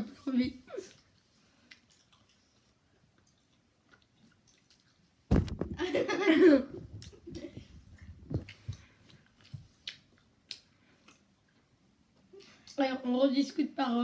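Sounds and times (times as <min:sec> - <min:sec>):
chewing and lip-smacking: 0:00.9 - 0:05.3, 0:08.0 - 0:12.8.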